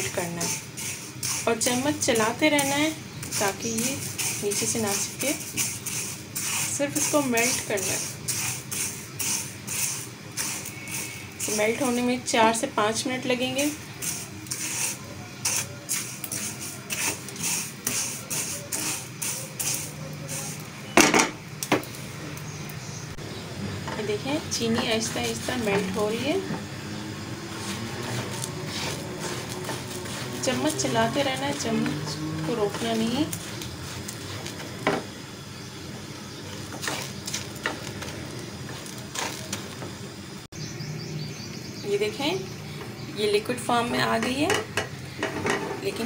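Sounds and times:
spatula stirring dry sugar in pan: 0:00.0 - 0:20.9, 0:24.0 - 0:39.9.

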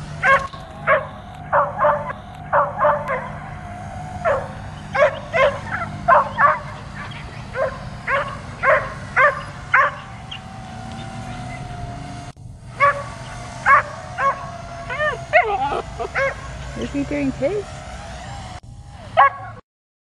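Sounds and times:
steady low hum: 0:00.0 - 0:19.6
dog barking sharply: 0:07.6 - 0:10.0.

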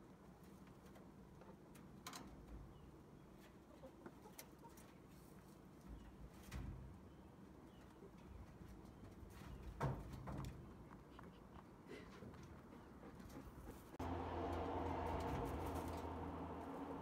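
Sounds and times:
rabbits shifting in straw: 0:13.7 - 0:17.0.

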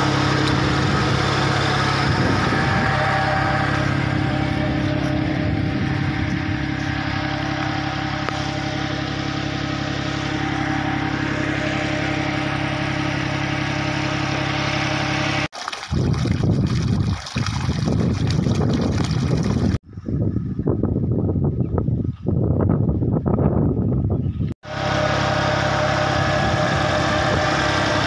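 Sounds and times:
tractor engine running: 0:00.0 - 0:19.8, 0:24.6 - 0:28.0
wind on microphone: 0:00.5 - 0:08.5, 0:15.9 - 0:24.6
water pouring from pipe: 0:15.5 - 0:19.8.

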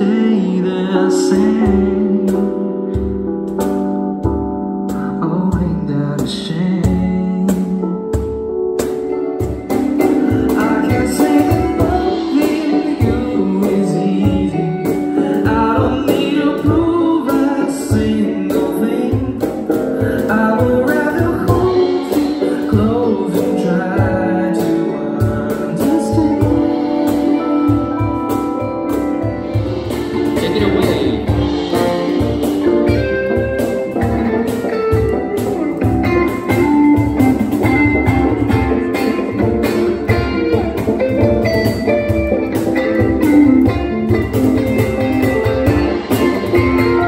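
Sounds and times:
person singing: 0:00.0 - 0:03.6, 0:04.9 - 0:08.4, 0:10.0 - 0:47.0
electric guitar chords: 0:00.0 - 0:47.0
keyboard chords: 0:00.0 - 0:47.0
live soul band: 0:00.0 - 0:47.0
steady low beat: 0:26.2 - 0:47.0
steady low end: 0:26.4 - 0:47.0
electric guitar played note by note: 0:26.8 - 0:47.0.

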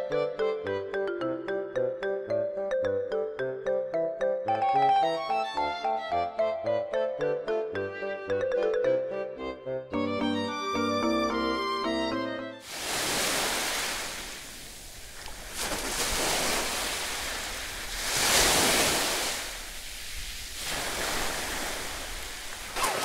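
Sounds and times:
sea waves washing onto beach: 0:12.6 - 0:23.0.

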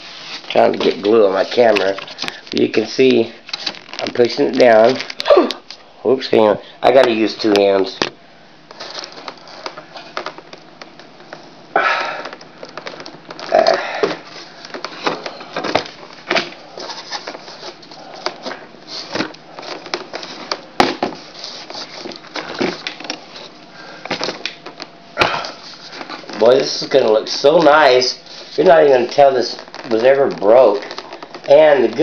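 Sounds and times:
foam part handling noise: 0:07.0 - 0:32.0.

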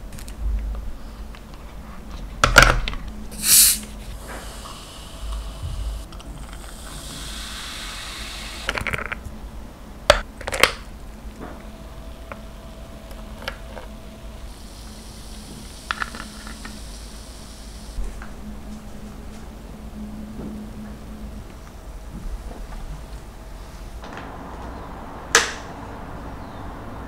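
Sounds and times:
soda fizzing: 0:03.3 - 0:09.0, 0:14.5 - 0:18.0.

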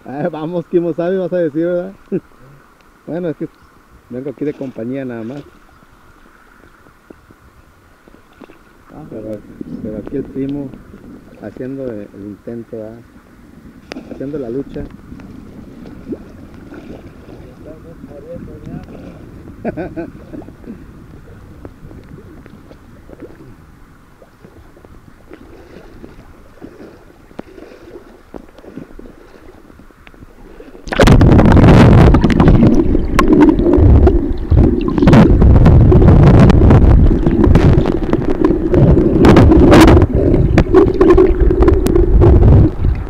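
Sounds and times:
faint river current: 0:00.0 - 0:43.0
underwater current rush: 0:13.5 - 0:43.0
sharp underwater knocks: 0:30.8 - 0:43.0.

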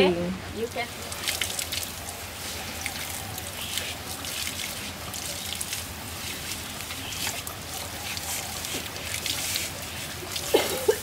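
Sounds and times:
hose water splashing on pavement: 0:00.0 - 0:11.0
brush scrubbing hide: 0:06.1 - 0:11.0.

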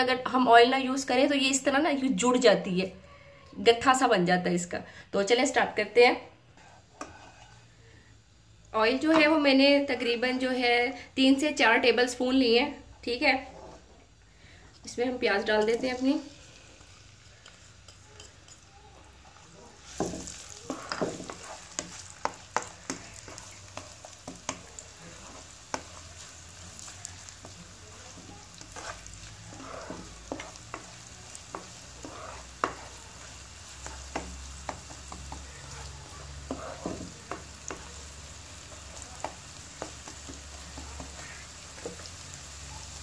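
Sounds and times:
onions sizzling in oil: 0:05.3 - 0:43.0
spatula tapping and scraping pan: 0:06.6 - 0:07.5, 0:19.9 - 0:42.1.

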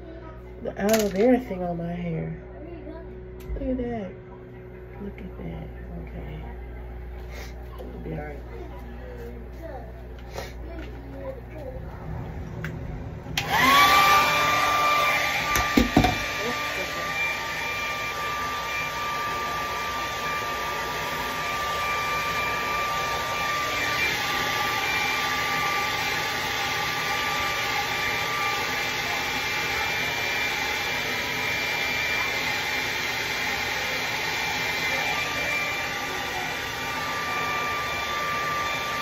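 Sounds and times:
hair dryer blowing: 0:12.5 - 0:39.0.

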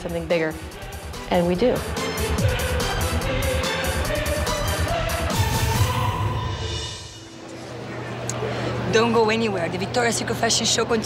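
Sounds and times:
music with steady drum beat: 0:00.0 - 0:06.0.

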